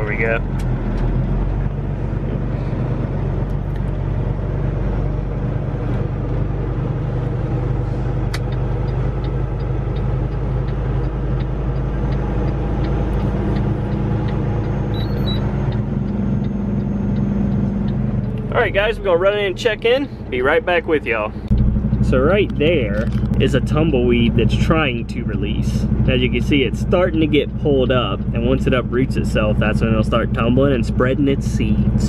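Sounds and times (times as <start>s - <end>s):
truck diesel engine drone: 0.0s - 32.0s
faint regular ticking: 7.5s - 18.6s, 19.6s - 28.4s.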